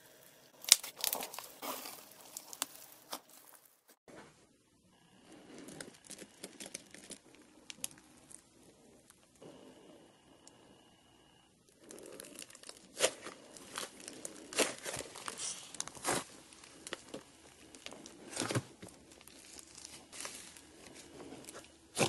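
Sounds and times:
slime crackling and popping: 0.6 - 3.6, 5.6 - 9.2, 11.8 - 22.0.

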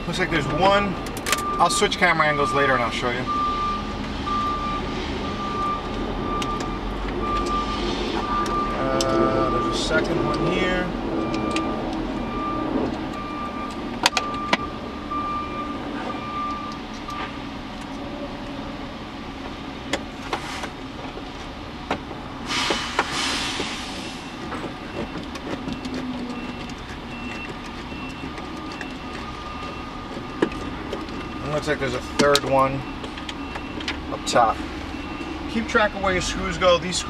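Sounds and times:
rushing hiss: 22.4 - 24.4.

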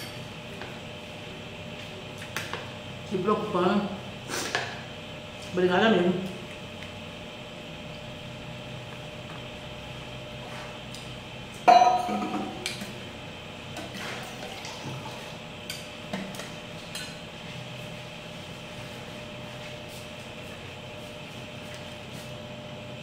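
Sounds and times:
tableware clink: 11.7 - 12.6.

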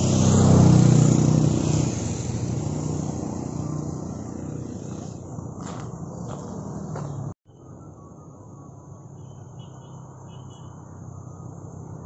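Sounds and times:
vehicle engine passing by: 0.0 - 8.0.

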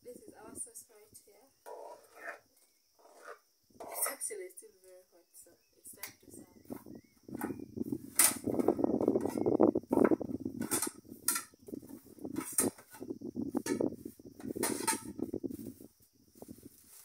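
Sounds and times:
plates scraping on plastic sheet: 1.6 - 4.2, 7.4 - 15.8
plastic plates clacking: 7.4 - 11.6, 12.3 - 15.2.

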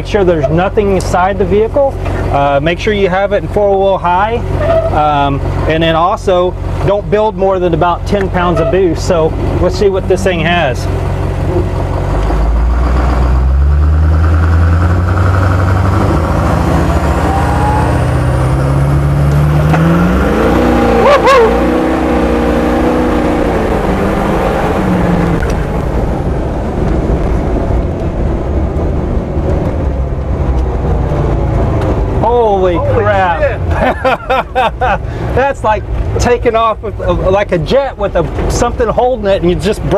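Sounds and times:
diesel engine revving: 0.0 - 39.9
high whistle: 17.1 - 18.2.

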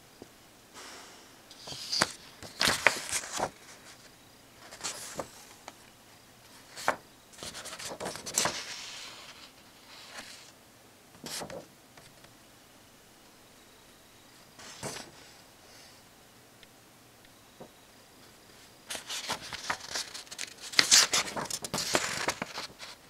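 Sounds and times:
paper pages rustling: 1.5 - 5.8, 6.5 - 10.5, 11.2 - 12.2, 14.6 - 15.2, 18.6 - 23.0.

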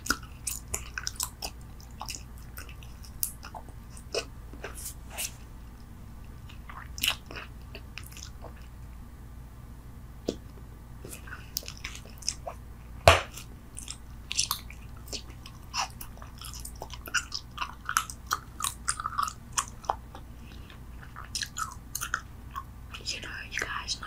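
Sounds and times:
gum chewing clicks and smacks: 0.0 - 4.8, 5.8 - 8.8, 10.2 - 12.6, 13.2 - 23.9
gum snap: 10.2 - 10.6.

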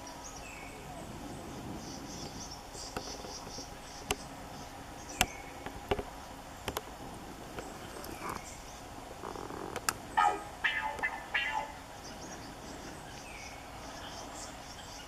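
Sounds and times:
insects chirping trill: 10.1 - 15.0.

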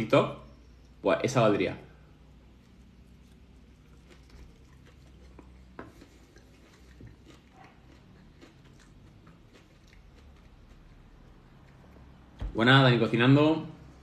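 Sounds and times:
close-mouthed chewing: 2.5 - 12.3.

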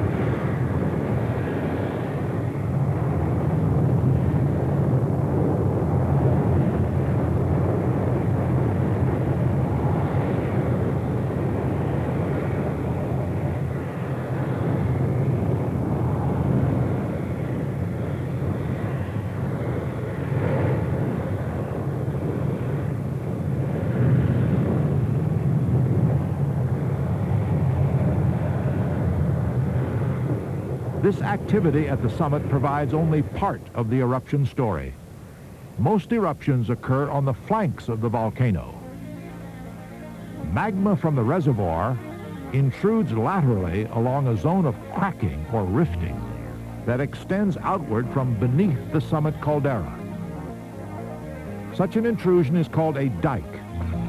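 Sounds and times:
lava fountain roaring: 0.0 - 33.6.

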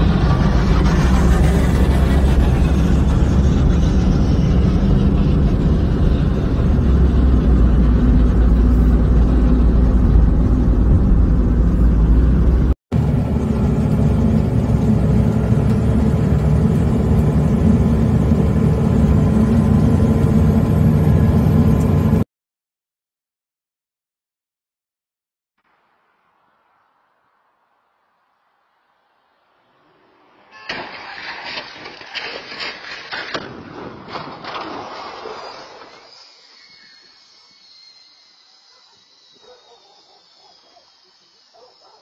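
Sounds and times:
truck engine drone: 0.0 - 22.3
vehicle engine and road noise: 0.0 - 22.3, 25.7 - 35.8.

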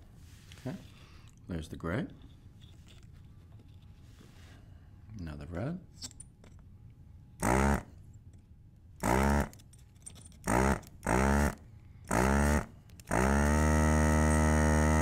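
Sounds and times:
vacuum pump buzzing whine: 7.4 - 8.0, 9.0 - 9.6, 10.5 - 15.0.

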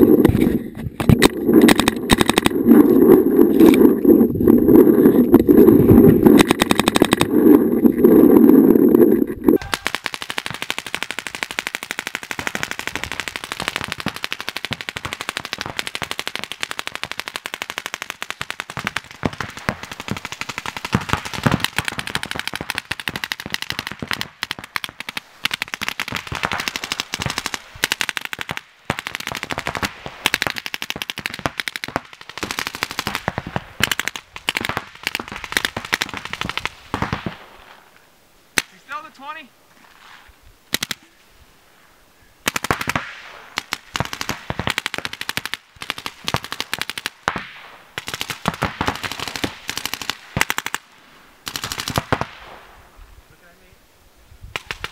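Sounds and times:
paintball markers firing: 0.2 - 2.6, 6.3 - 7.4, 9.6 - 37.3.

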